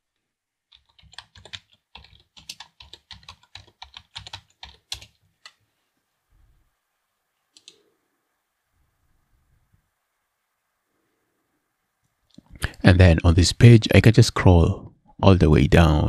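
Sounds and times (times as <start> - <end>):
typing on computer keyboard: 0.7 - 5.6.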